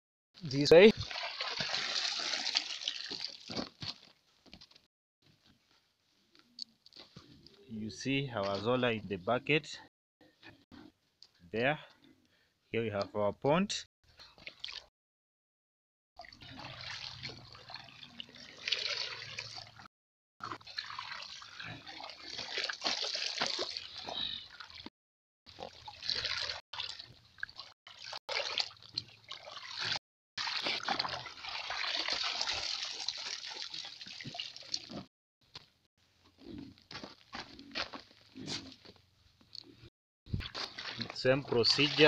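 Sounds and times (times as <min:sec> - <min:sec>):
water splashing and dripping: 0:00.5 - 0:04.0, 0:14.3 - 0:14.9, 0:16.2 - 0:24.9, 0:25.5 - 0:35.1, 0:40.3 - 0:42.0.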